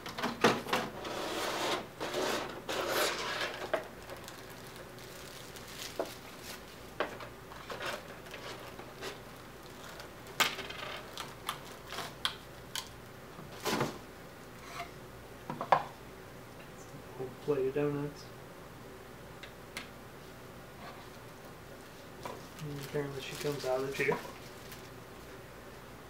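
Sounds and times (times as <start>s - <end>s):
plastic packaging crinkling: 3.6s - 6.9s, 7.6s - 12.2s, 22.4s - 25.0s.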